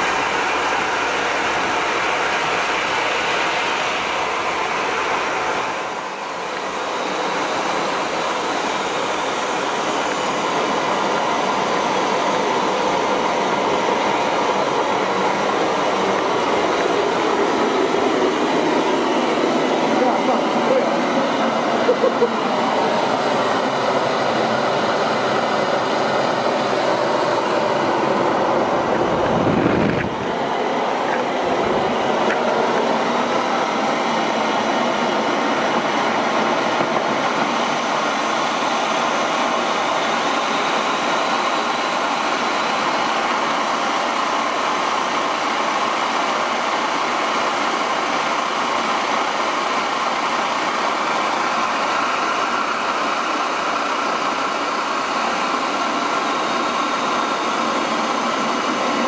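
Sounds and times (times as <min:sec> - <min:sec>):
jet engine whine: 0:00.0 - 0:59.0
low rumble: 0:28.2 - 0:32.2.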